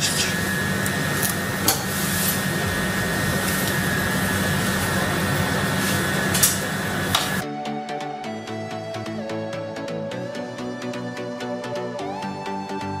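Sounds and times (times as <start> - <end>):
steady mechanical hum: 0.0 - 7.4.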